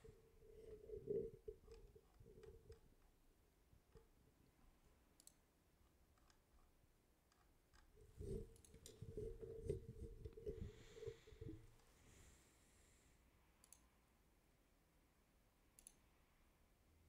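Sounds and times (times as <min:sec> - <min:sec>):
computer mouse clicks: 0:05.1 - 0:05.5, 0:06.1 - 0:10.5, 0:13.6 - 0:14.0, 0:15.8 - 0:16.1.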